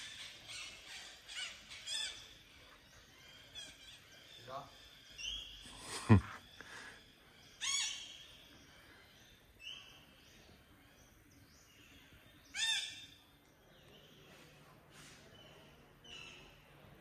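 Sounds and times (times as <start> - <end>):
bird harsh calls: 0.0 - 10.1, 12.4 - 13.2.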